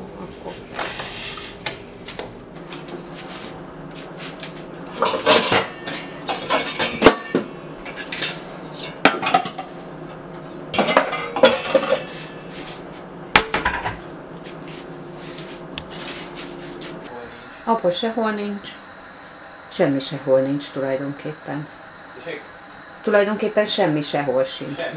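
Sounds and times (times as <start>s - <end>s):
metal kitchenware clattering: 5.0s - 9.7s, 10.8s - 12.3s.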